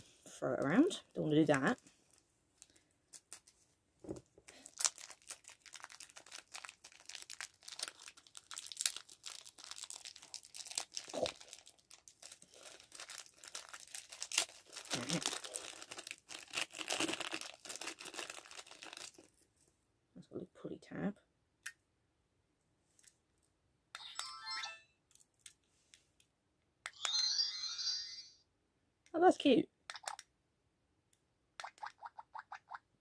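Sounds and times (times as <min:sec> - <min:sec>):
plastic packaging crinkling: 0:04.5 - 0:19.4.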